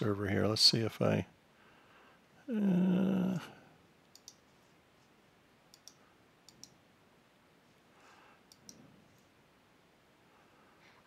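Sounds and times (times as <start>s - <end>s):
computer mouse clicking: 4.1s - 4.5s, 5.7s - 6.8s, 8.4s - 8.8s.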